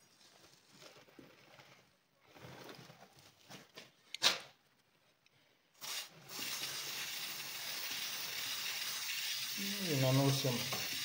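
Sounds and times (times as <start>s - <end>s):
aerosol spray can hissing: 5.8s - 11.0s.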